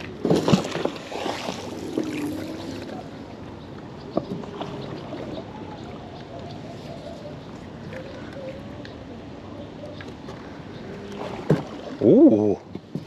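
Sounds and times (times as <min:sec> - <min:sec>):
splashing and rope noise: 0:00.0 - 0:03.2, 0:10.1 - 0:13.0
water lapping around a hull: 0:00.0 - 0:13.0.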